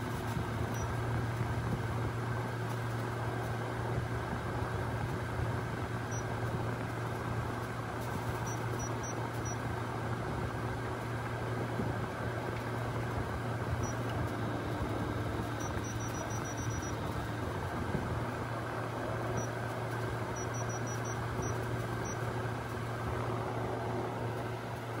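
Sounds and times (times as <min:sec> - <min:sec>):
air conditioner hum and airflow: 0:00.0 - 0:25.0
short high beeps: 0:15.6 - 0:17.1, 0:20.4 - 0:22.2.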